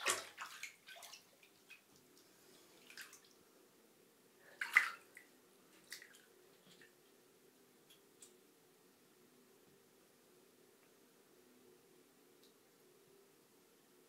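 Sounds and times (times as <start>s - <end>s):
kittens splashing in bathwater: 0.0s - 2.0s, 4.6s - 6.9s.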